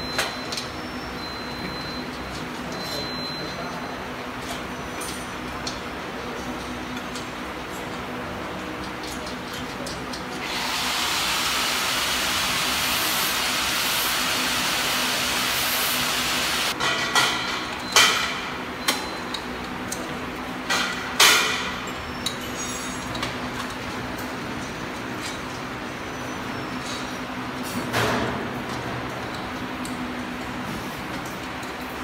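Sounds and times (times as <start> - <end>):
machine hum: 10.4 - 16.8.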